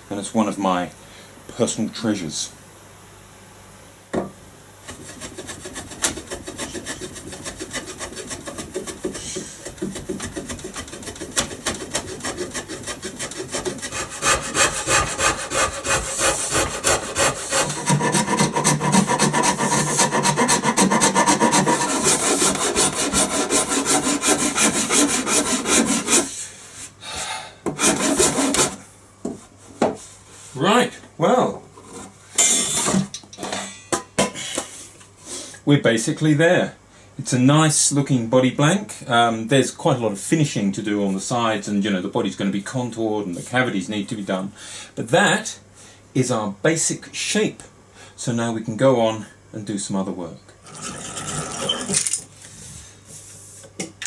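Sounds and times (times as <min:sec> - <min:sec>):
rasp scraping wood: 0:04.9 - 0:26.3, 0:27.8 - 0:28.8.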